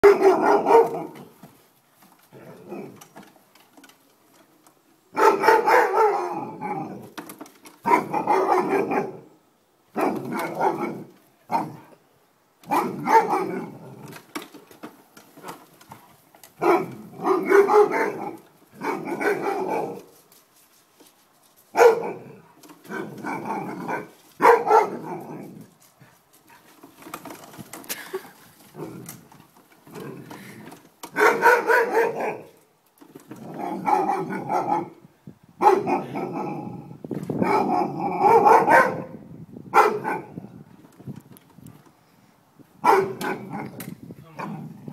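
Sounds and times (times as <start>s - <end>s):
dog barking: 0.0s - 1.2s, 5.2s - 6.5s, 7.9s - 9.2s, 10.0s - 11.7s, 12.7s - 13.6s, 16.6s - 20.0s, 21.8s - 22.2s, 23.0s - 25.2s, 31.2s - 32.5s, 33.8s - 34.9s, 35.6s - 36.4s, 37.4s - 39.2s, 39.8s - 40.3s, 42.8s - 43.7s.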